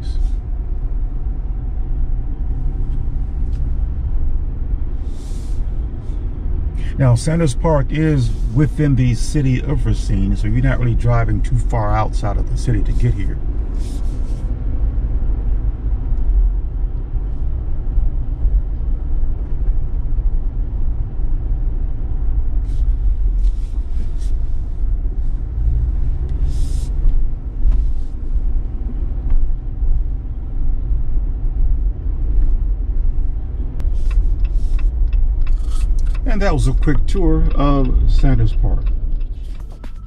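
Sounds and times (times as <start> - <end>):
car engine and road rumble: 0.0 - 40.0
short hissing: 5.0 - 6.2.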